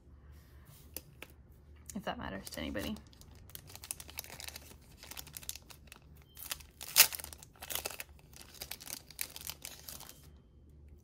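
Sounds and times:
plastic packaging crackling: 2.4 - 10.3.

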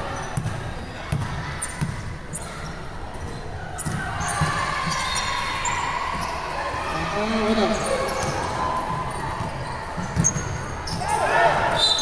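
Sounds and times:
basketball bouncing on court floor: 0.3 - 2.1, 9.4 - 11.0.

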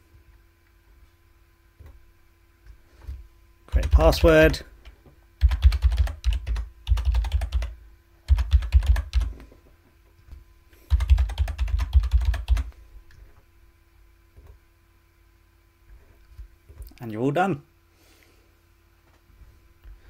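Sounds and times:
keyboard typing: 3.7 - 4.5, 5.4 - 9.3, 10.9 - 12.7.

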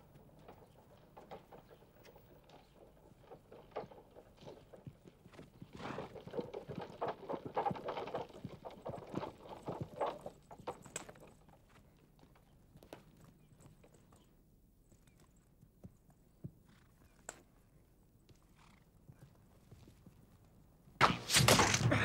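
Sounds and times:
horse hoofbeats on snow: 0.0 - 14.3.

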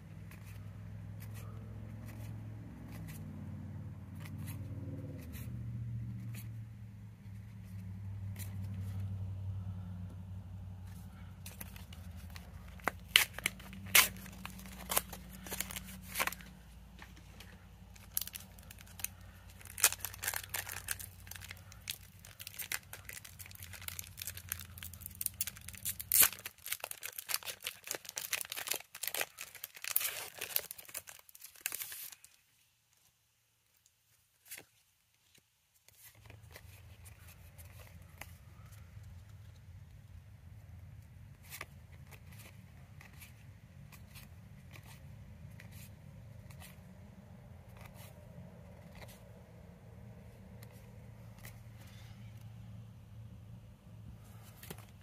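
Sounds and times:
low steady hum: 0.0 - 31.0, 35.9 - 55.0
foil wrapper crinkling and tearing: 11.4 - 32.5.

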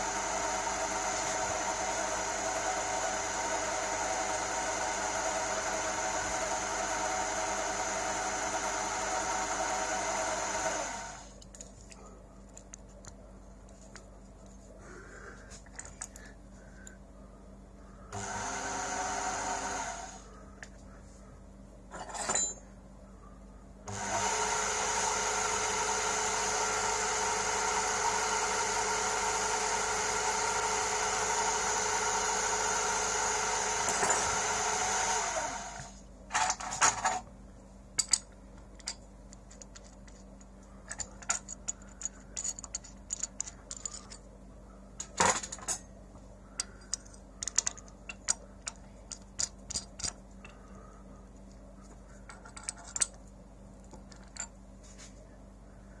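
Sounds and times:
metal lathe running: 0.0 - 11.3, 18.1 - 20.2, 23.9 - 35.9
small metallic clicks and taps: 46.6 - 50.6.

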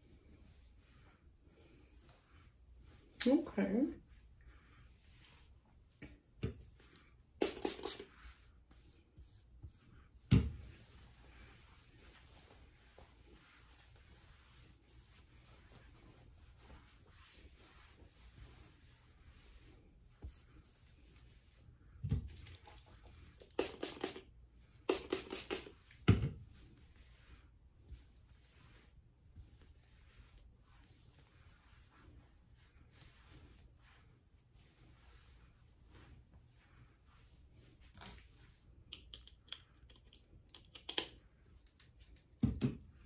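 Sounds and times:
hair rustling in hands: 0.0 - 43.0
spray bottle misting: 7.4 - 8.1, 23.4 - 26.0.

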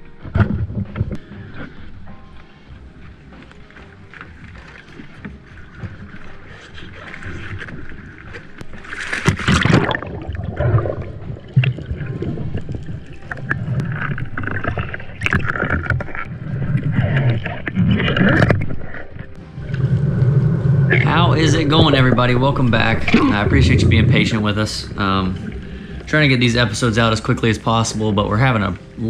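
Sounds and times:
underwater gurgling and sloshing: 0.0 - 29.0
splash into water: 5.8 - 16.3.

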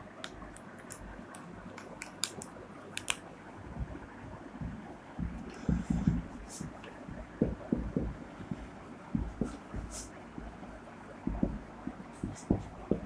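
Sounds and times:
marker pen knocking on whiteboard: 4.6 - 10.6, 11.3 - 13.0.

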